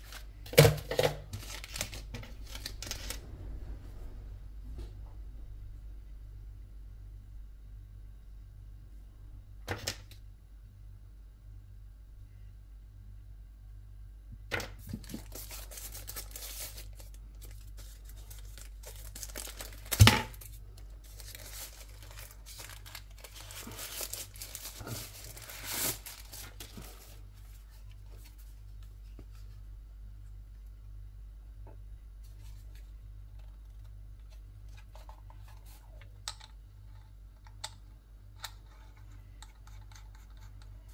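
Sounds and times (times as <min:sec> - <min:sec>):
paper and plastic tearing: 0:00.0 - 0:03.2, 0:14.9 - 0:27.1.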